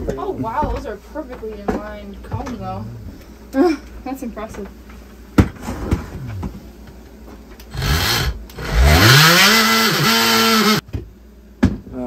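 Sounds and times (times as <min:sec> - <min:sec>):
power tool motor whine: 0:07.7 - 0:10.8.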